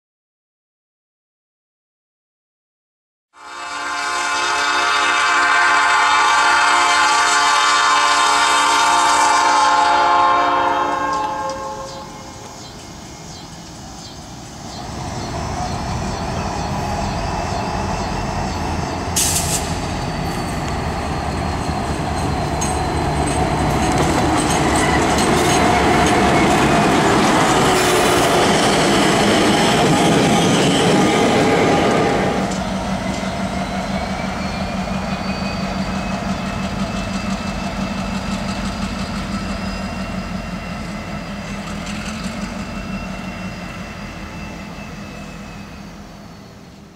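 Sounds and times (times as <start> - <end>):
train wheel noise: 5.4 - 46.9
locomotive engine drone: 7.8 - 46.9
high wheel squeal: 11.0 - 46.8.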